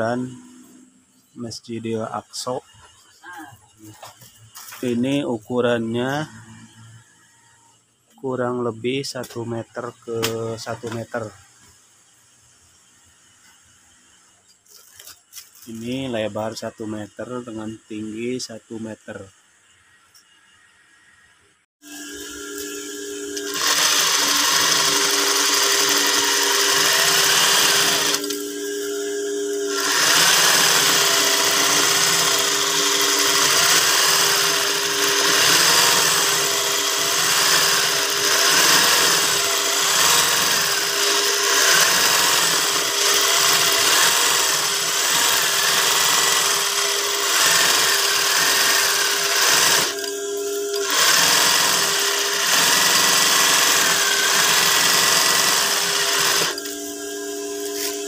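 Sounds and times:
sewing machine stitching: 23.3s - 56.7s.

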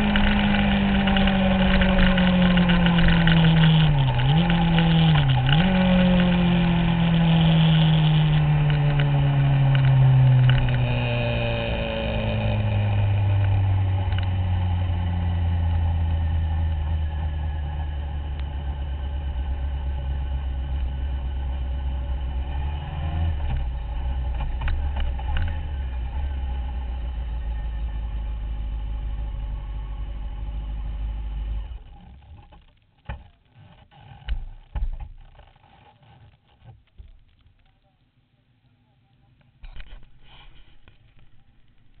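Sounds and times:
motorcycle engine revs falling: 0.0s - 28.0s.

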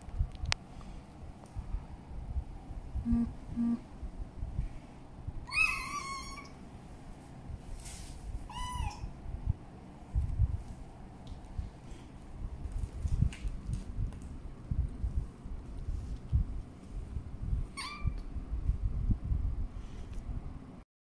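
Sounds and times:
kitten meowing: 5.5s - 6.6s, 8.5s - 9.1s, 17.8s - 18.2s.

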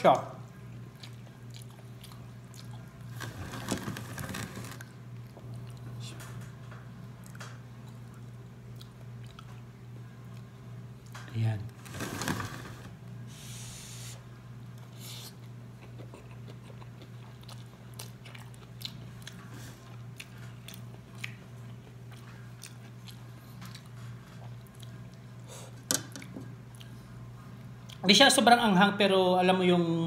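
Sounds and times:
chewing noodles: 0.8s - 6.0s, 15.3s - 25.5s.

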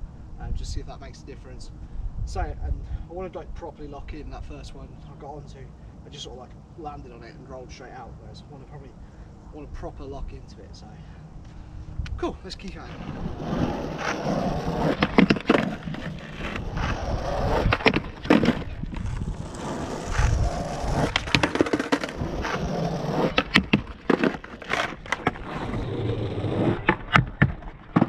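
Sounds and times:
skateboard wheels rolling on asphalt: 12.5s - 28.0s
skateboard tail snapping down: 13.0s - 25.8s, 26.6s - 28.0s
skateboard clacks: 13.8s - 25.5s, 26.8s - 28.0s.

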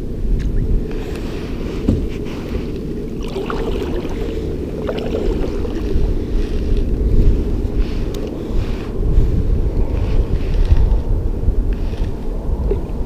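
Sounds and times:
wind buffeting microphone: 0.0s - 13.0s
faint lapping water: 0.8s - 10.6s.

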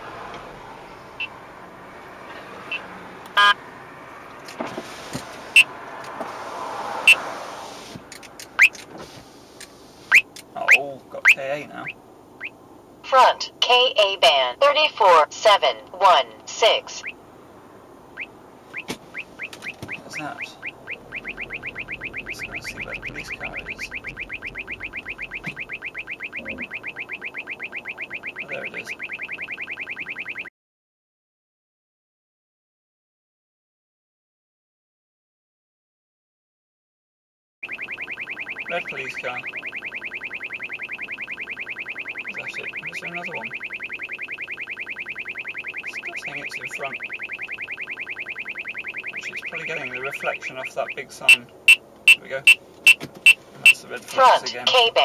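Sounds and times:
car driving hum: 0.0s - 30.5s, 37.6s - 55.0s
radar detector rising chirps: 2.7s - 3.6s, 7.0s - 7.3s, 8.6s - 8.8s, 10.1s - 12.6s, 16.6s - 17.2s, 18.1s - 30.5s, 37.6s - 55.0s
lower fuller beep: 19.4s - 30.5s, 37.6s - 52.6s
short high beeps: 51.3s - 52.6s.

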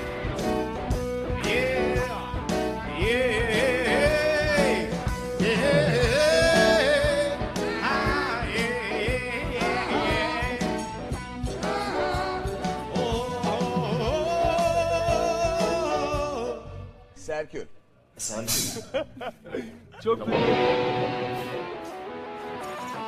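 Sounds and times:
band playing: 0.0s - 16.6s, 20.3s - 23.0s
person singing with vibrato: 1.4s - 17.1s.

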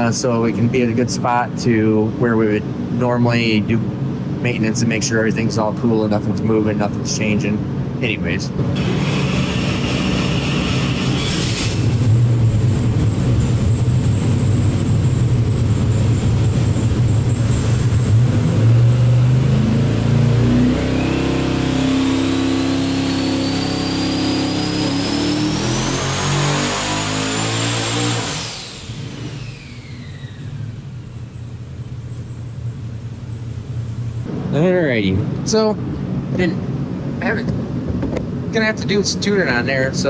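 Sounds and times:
turbo whine rising in pitch: 8.7s - 35.1s
racing engine revving: 16.4s - 30.6s.

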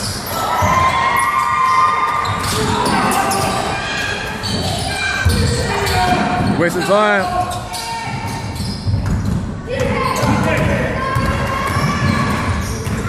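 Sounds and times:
sneakers squeaking: 0.0s - 13.0s
basketball bouncing on court: 4.4s - 13.0s.

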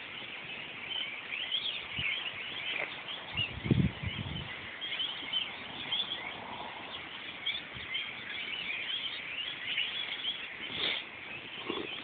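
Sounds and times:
flock of birds chirping: 0.0s - 12.0s.

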